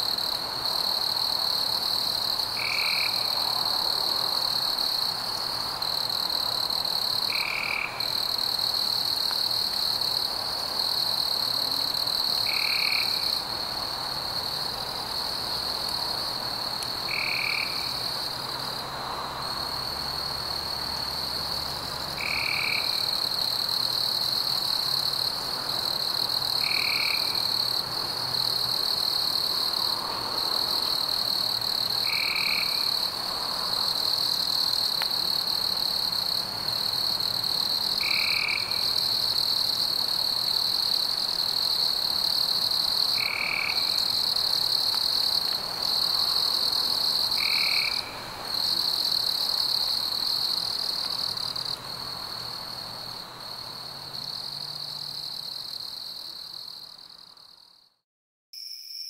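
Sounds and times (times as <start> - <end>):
insects or frogs trilling: 0.0 - 5.1, 5.9 - 10.2, 17.0 - 18.2, 22.2 - 51.7.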